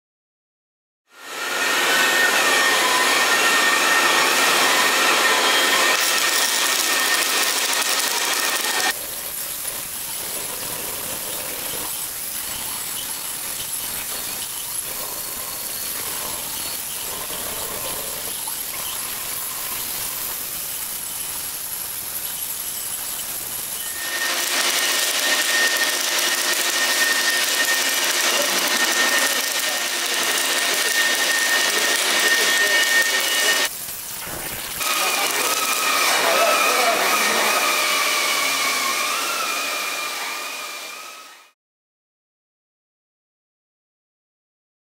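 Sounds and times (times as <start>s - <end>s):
wavering machine whine: 1.2s - 41.5s
welding arc hiss and crackle: 5.5s - 37.6s.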